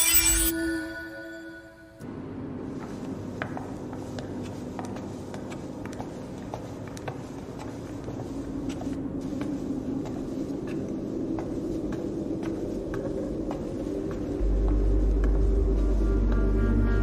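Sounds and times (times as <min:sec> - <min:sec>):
footsteps on hard floor: 0:02.7 - 0:16.5
low rumbling drone: 0:11.0 - 0:17.0.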